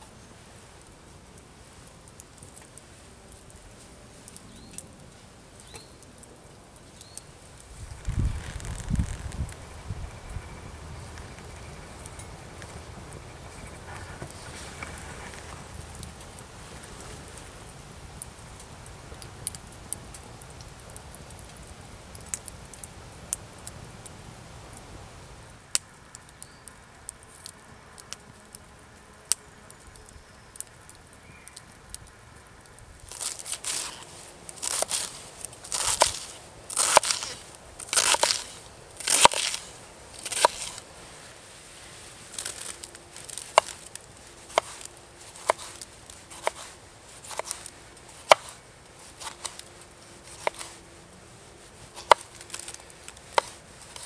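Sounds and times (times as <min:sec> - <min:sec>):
knife chopping lettuce: 0:34.6 - 0:40.8, 0:44.5 - 0:48.6, 0:49.2 - 0:49.6, 0:50.3 - 0:50.8.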